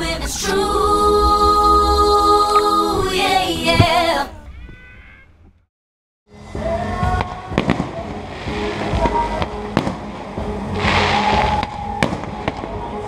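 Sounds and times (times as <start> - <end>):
fireworks crackling: 7.0 - 13.0
fireworks bangs: 7.2 - 12.9.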